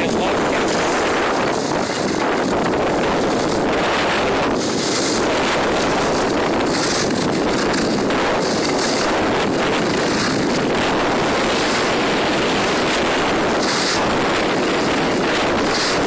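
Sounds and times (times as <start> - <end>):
wind noise on microphone: 0.0 - 16.0
skis hissing over snow: 0.1 - 16.0.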